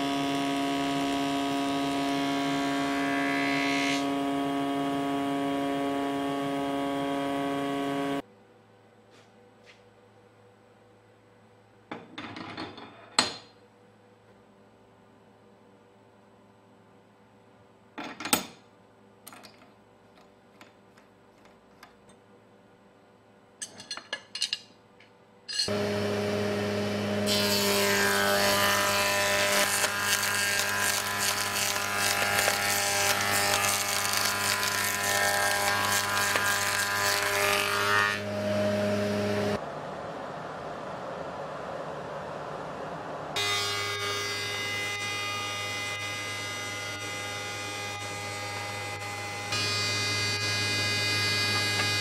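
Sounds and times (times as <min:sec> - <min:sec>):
machine motor humming: 0:04.0 - 0:08.2.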